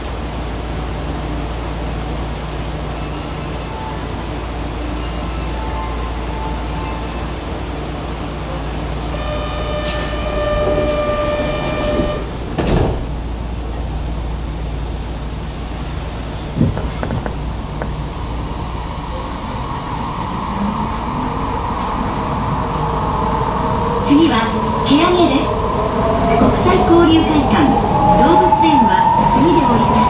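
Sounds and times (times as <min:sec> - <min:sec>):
subway train motors whining: 0:00.0 - 0:30.0
steady low rumble: 0:13.0 - 0:27.8.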